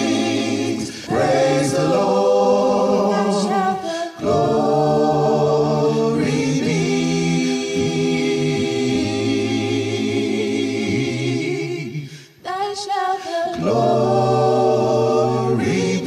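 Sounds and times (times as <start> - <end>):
choir singing in harmony: 0.0 - 16.0.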